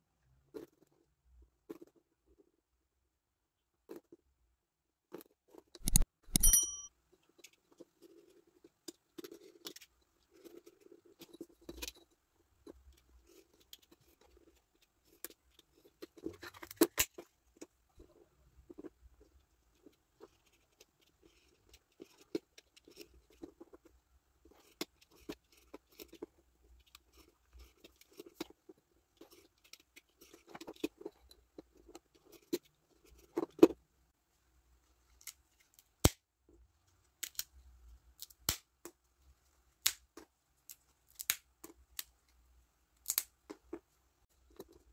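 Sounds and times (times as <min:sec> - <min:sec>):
tools clicking and knocking: 0:05.8 - 0:06.9
ringing chime: 0:06.3 - 0:06.9.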